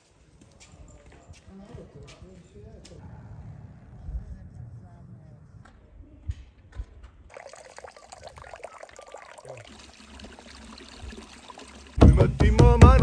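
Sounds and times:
water splashing from pipe spout: 0:07.3 - 0:12.0
loud music with drum hits: 0:12.0 - 0:13.0.

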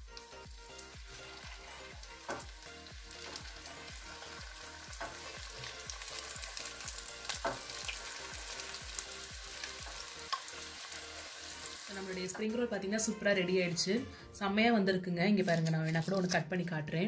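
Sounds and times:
food deep-frying in hot oil: 0:00.0 - 0:12.4.

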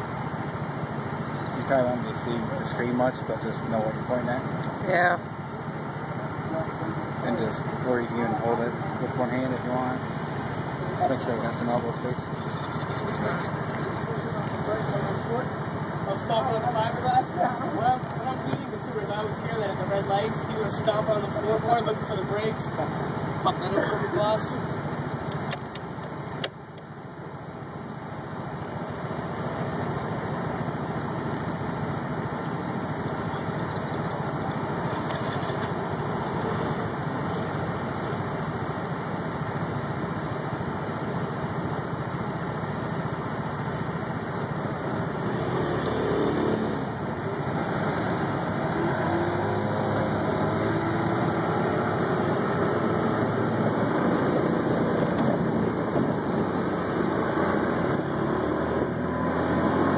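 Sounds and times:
small engine idling: 0:00.0 - 0:45.2.

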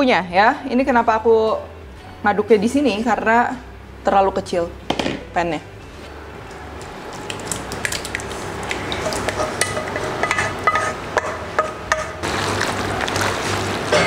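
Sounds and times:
sauce wet splats: 0:06.8 - 0:09.4.

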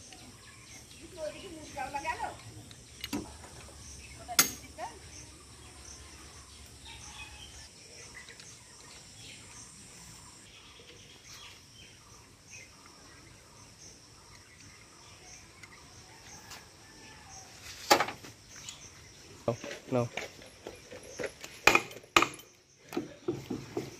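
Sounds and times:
sharp clank of hand tool: 0:04.4 - 0:04.7.

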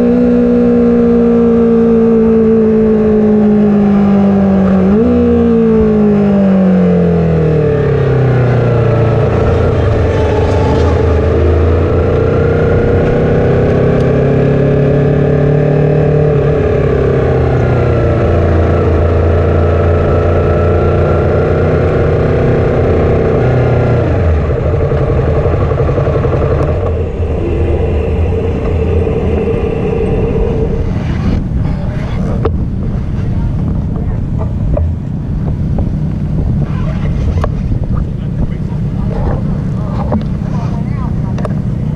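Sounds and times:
motorcycle engine slowing: 0:05.9 - 0:36.6.

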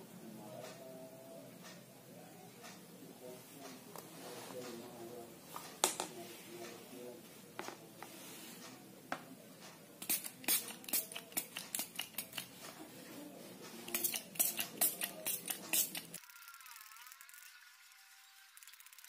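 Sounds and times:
spray bottle pump clicking and spritzing: 0:10.0 - 0:12.5, 0:13.9 - 0:17.6.

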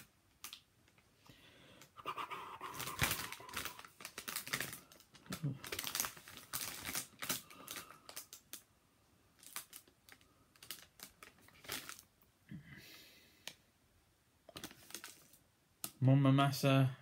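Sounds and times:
plastic packets crackling: 0:00.0 - 0:01.1, 0:02.6 - 0:08.7, 0:09.3 - 0:12.2, 0:14.5 - 0:16.0
crisp bag crinkle: 0:02.6 - 0:08.7, 0:09.4 - 0:12.1, 0:14.5 - 0:15.4.

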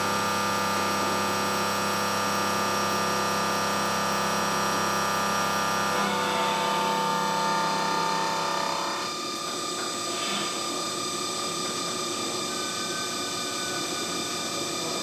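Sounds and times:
milling machine whine: 0:00.0 - 0:15.0
gritty metal cutting noise: 0:05.9 - 0:09.1.

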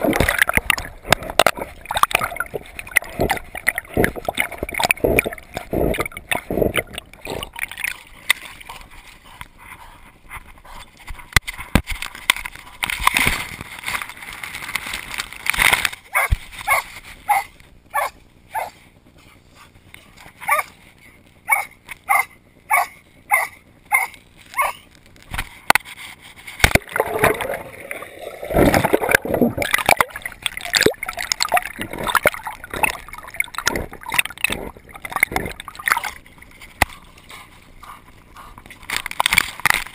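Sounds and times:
river water sloshing and gurgling: 0:00.0 - 0:09.2, 0:26.6 - 0:37.8.

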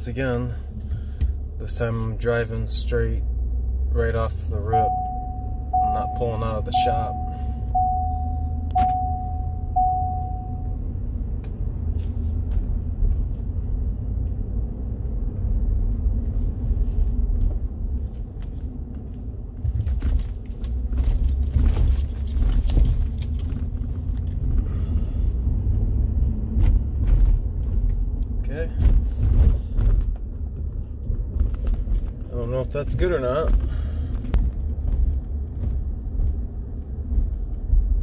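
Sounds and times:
pickup engine and road rumble: 0:00.0 - 0:38.0
single-pitch chime beeping: 0:04.7 - 0:10.6.

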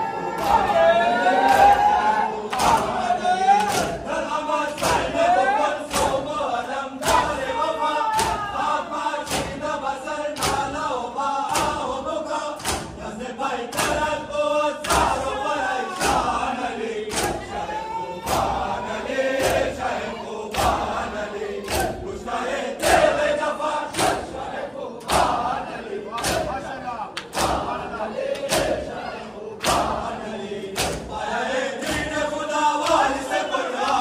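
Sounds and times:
men chanting together: 0:00.0 - 0:34.0
hands slapping chests: 0:02.5 - 0:03.0, 0:03.6 - 0:04.1, 0:04.7 - 0:05.1, 0:05.9 - 0:06.3, 0:08.2 - 0:08.5, 0:09.2 - 0:09.6, 0:10.4 - 0:10.8, 0:11.5 - 0:11.8, 0:12.6 - 0:13.0, 0:17.1 - 0:17.5, 0:21.6 - 0:22.1, 0:26.1 - 0:28.8, 0:29.6 - 0:30.1, 0:30.7 - 0:31.2, 0:32.8 - 0:33.2.

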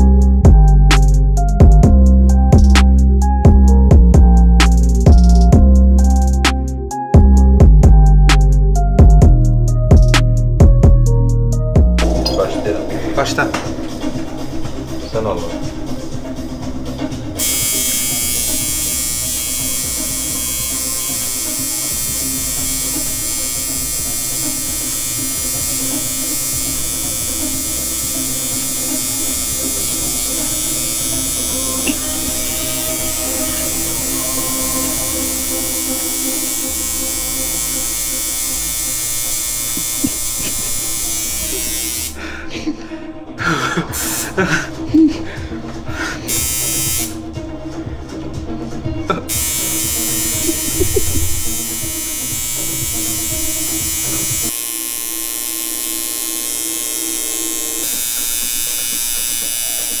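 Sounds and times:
tattoo machine buzzing: 0:17.4 - 0:42.2, 0:43.9 - 0:44.4, 0:46.3 - 0:47.2, 0:49.3 - 1:00.0.

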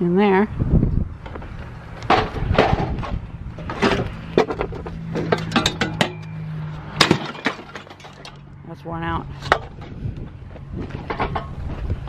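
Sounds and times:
scrap metal clanking: 0:02.1 - 0:08.4, 0:10.9 - 0:11.6.

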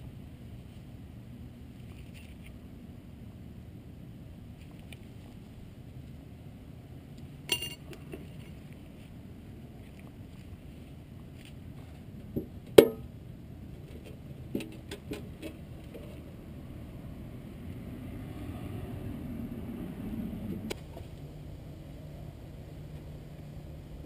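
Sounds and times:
steady low hum: 0:00.0 - 0:24.0
rustling: 0:01.7 - 0:02.6.

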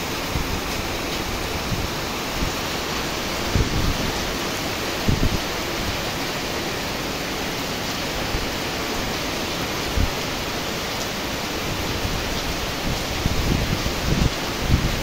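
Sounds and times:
wind buffeting microphone: 0:00.0 - 0:06.0, 0:09.8 - 0:10.3, 0:11.6 - 0:15.0
heavy rain falling: 0:00.0 - 0:15.0.

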